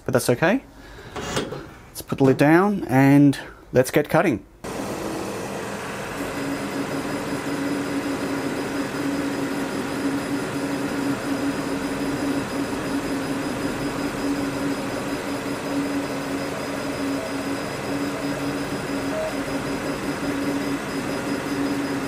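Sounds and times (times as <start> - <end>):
laser cutter whirring and humming: 4.7 - 22.0.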